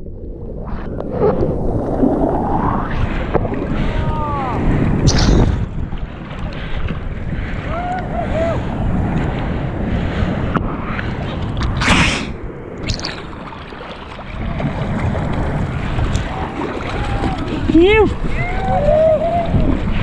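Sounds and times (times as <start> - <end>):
waves splashing and sloshing: 0.0 - 20.0
wind buffeting microphone: 0.0 - 20.0
sharp splash: 5.0 - 6.2, 11.6 - 17.7.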